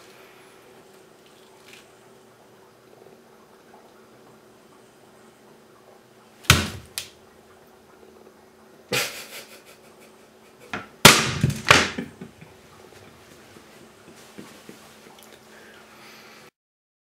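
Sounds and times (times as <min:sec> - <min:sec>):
knife chopping on plastic board: 0:06.5 - 0:06.9.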